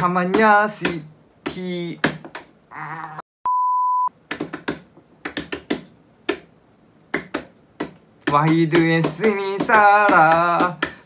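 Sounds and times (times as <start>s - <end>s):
censor bleep: 3.4s - 4.1s.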